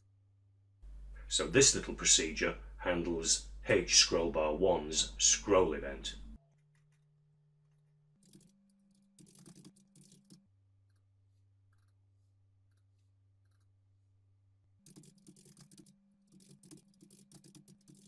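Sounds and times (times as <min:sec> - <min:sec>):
faint low hum: 0:00.0 - 0:09.3
faint keyboard typing: 0:07.7 - 0:11.0, 0:14.8 - 0:18.0.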